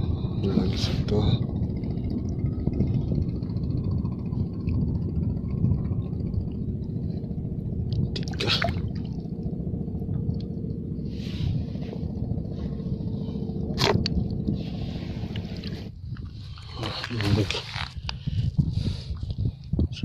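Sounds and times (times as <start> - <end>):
wind on microphone: 0.0 - 20.0
water splashes: 8.0 - 9.4.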